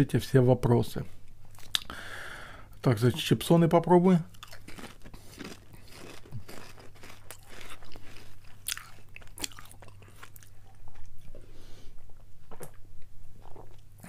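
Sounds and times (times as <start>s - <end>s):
potato chips crunched and chewed: 4.3s - 11.3s.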